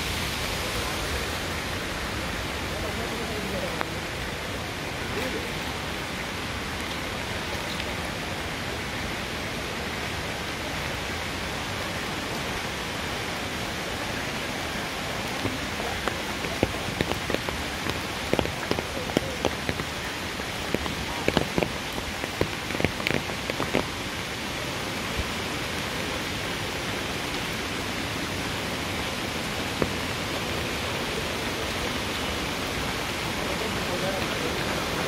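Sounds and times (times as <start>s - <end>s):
rain falling on wet road: 0.0s - 35.0s
close raindrop taps: 15.2s - 24.3s, 29.7s - 30.2s.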